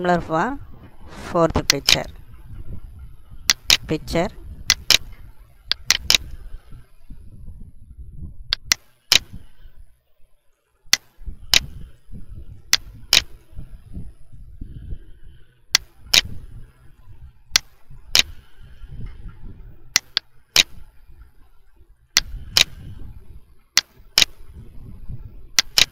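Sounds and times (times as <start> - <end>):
low rumble: 0.0 - 10.4, 11.0 - 25.6
mouse button clicks: 5.7 - 6.4, 8.5 - 9.4, 17.6 - 18.4, 20.0 - 20.8, 23.8 - 24.4, 25.6 - 25.9.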